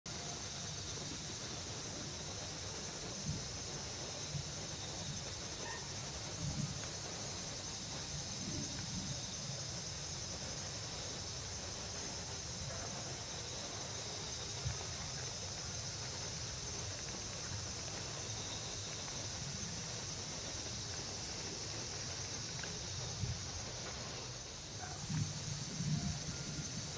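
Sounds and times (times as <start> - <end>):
high insect chorus: 0.1 - 26.9.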